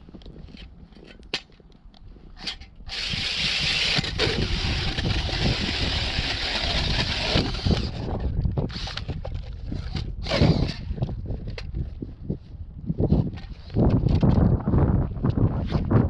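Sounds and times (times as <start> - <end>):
ice auger grinding through ice: 2.4 - 11.1.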